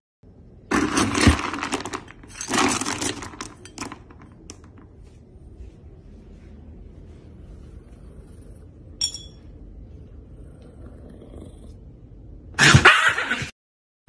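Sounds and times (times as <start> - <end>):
scoop rattling dry kibble: 0.7 - 4.4.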